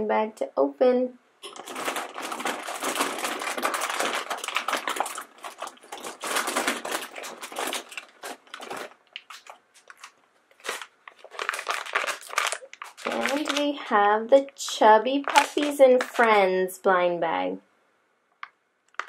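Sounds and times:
plastic packets crinkling: 1.4 - 16.5.

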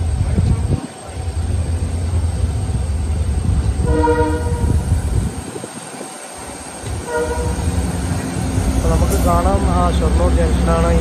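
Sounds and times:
train rumbling slowly: 0.0 - 11.0
train horn blast: 3.8 - 4.8, 7.0 - 7.9.

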